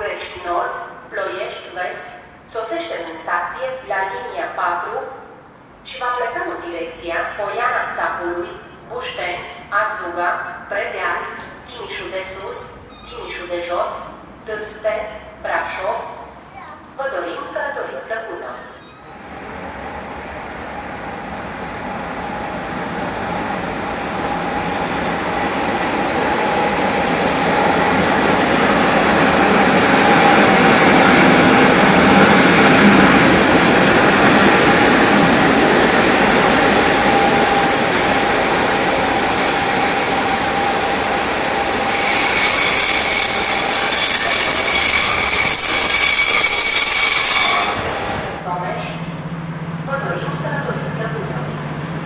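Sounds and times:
wheels and brakes squealing: 12.8 - 13.4, 18.5 - 19.4, 30.1 - 48.2
train rumble: 18.5 - 52.0.

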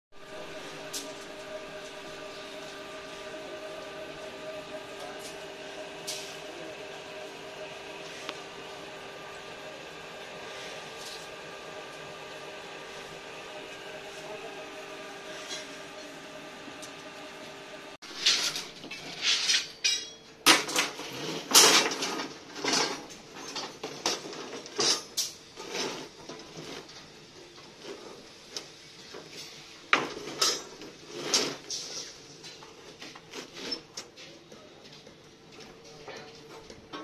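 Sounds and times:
steel bars clanking together: 18.1 - 24.2.

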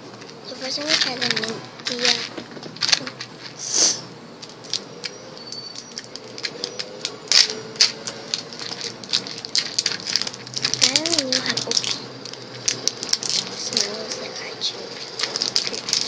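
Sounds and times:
candy wrapper rustling: 0.0 - 16.0.

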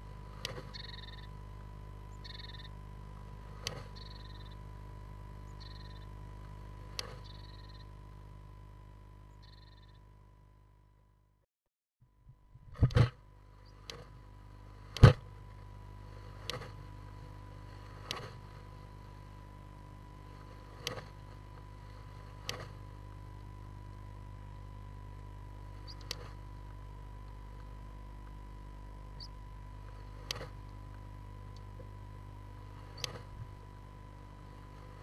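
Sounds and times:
electrical hum: 0.0 - 11.4, 12.0 - 35.0
bird wing-beats and bill-snapping: 0.1 - 1.7, 2.3 - 4.4, 5.8 - 7.4, 12.7 - 19.4, 20.1 - 24.1, 25.1 - 28.5, 29.1 - 31.9, 32.6 - 33.8.

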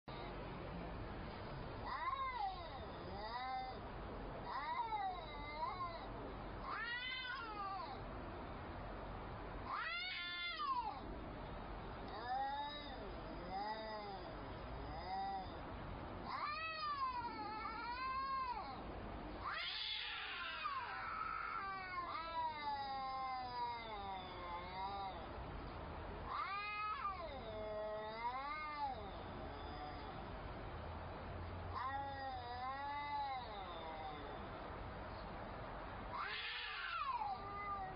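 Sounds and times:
cats yowling: 1.8 - 3.8, 4.4 - 8.0, 9.6 - 11.1, 12.1 - 15.6, 16.2 - 25.4, 26.2 - 30.4, 31.7 - 34.6, 36.0 - 37.9.

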